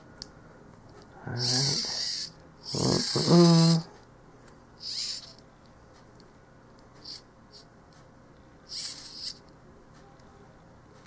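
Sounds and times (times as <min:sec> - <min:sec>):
high-pitched scratchy whirs of gears: 0:01.4 - 0:03.9, 0:04.8 - 0:05.4, 0:07.0 - 0:07.2, 0:08.7 - 0:09.4.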